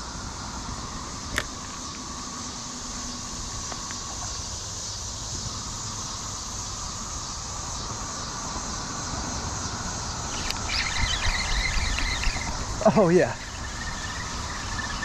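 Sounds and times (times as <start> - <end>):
distant traffic: 0.0 - 15.0
insects hissing: 0.0 - 15.0
bird warbling: 10.2 - 15.0
fishing reel handling rumble: 10.3 - 15.0.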